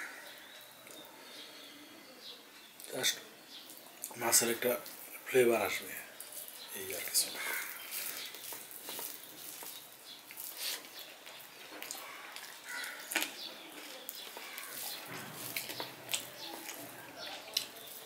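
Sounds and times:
fingers squishing rice: 0:06.2 - 0:18.0
chewing with lip smacks: 0:07.4 - 0:18.0.

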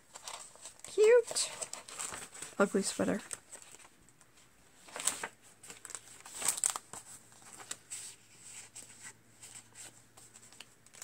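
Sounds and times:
paper pages rustling: 0:00.0 - 0:11.0.

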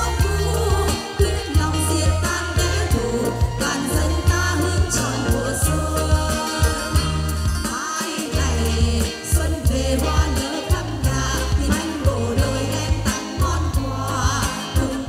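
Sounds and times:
backing music with bass beat: 0:00.0 - 0:15.0
woman singing into microphone: 0:00.0 - 0:15.0.

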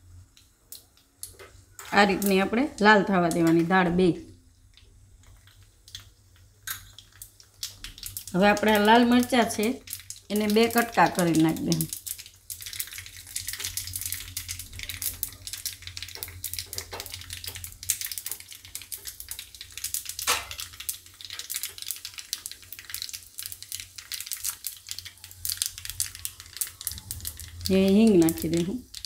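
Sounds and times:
hot oil sizzling and crackling: 0:00.0 - 0:29.0
sharp pop: 0:20.3 - 0:20.6.

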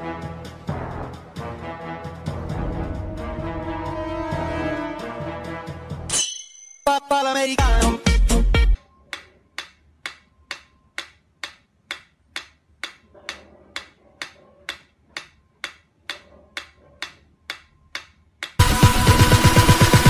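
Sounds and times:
mechanical metronome ticking: 0:09.1 - 0:13.1, 0:13.8 - 0:18.6.

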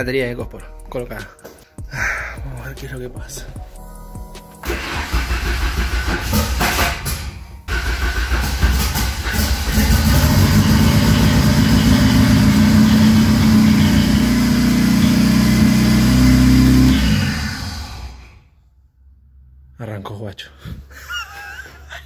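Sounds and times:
car engine cranking and idling: 0:04.6 - 0:18.5.

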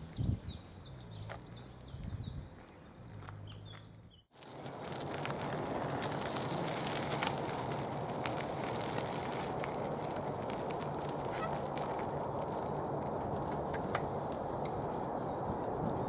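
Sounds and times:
small birds chirping: 0:00.0 - 0:04.3
crackles and clicks: 0:04.3 - 0:16.0.

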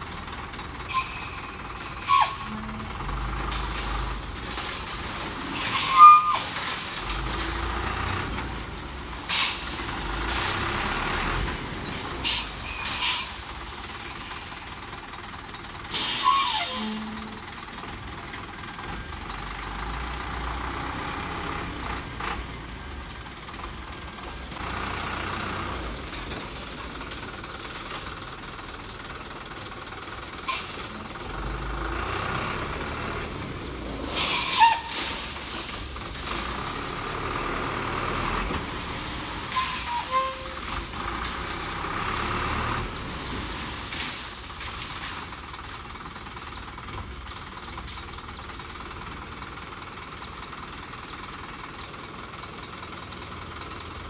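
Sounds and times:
diesel truck engine running: 0:00.0 - 0:54.0
air brakes hissing: 0:05.6 - 0:07.0, 0:09.3 - 0:09.8, 0:12.2 - 0:14.6, 0:15.9 - 0:17.2, 0:34.0 - 0:35.8, 0:39.2 - 0:40.9.

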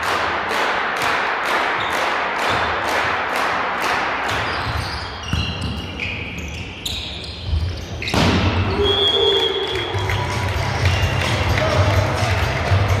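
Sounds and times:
crowd noise: 0:00.0 - 0:13.0
ball bouncing on court floor: 0:04.2 - 0:08.7.

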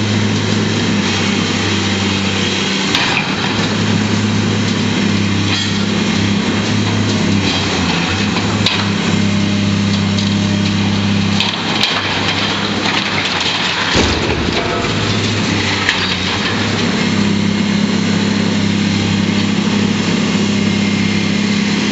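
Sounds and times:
excavator engine running: 0:00.0 - 0:21.9
steel cracking: 0:09.9 - 0:17.3
loud crash of metal structure: 0:11.4 - 0:17.2
debris rattling: 0:11.4 - 0:17.3.

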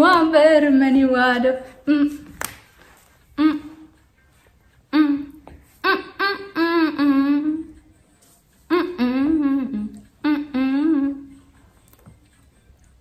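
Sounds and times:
woman humming: 0:01.8 - 0:02.3, 0:03.3 - 0:04.0, 0:04.9 - 0:07.8, 0:08.7 - 0:11.5.

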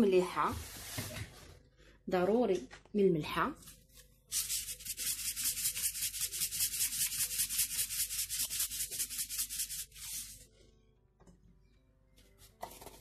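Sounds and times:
salt dispenser gritty strokes: 0:04.3 - 0:10.4.

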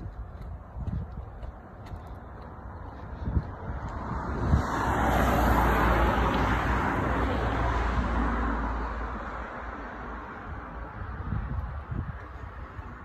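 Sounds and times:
car driving past: 0:03.9 - 0:10.5.

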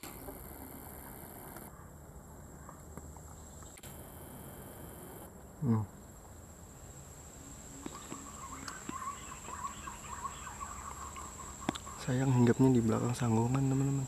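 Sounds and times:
high insect drone: 0:00.0 - 0:01.8, 0:03.3 - 0:14.0
pigeons whistling warbling calls: 0:07.7 - 0:14.0
loud falling bird call: 0:07.8 - 0:13.2.

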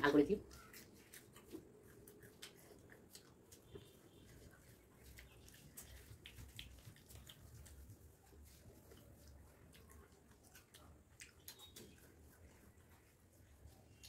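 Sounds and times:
small clicks from eating by hand: 0:08.9 - 0:12.5.

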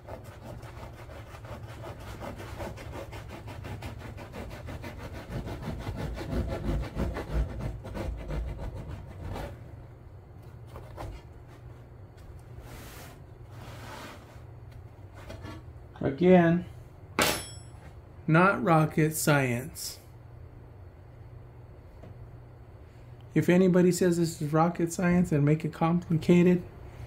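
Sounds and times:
hacksaw blade sawing foam: 0:00.0 - 0:09.6.

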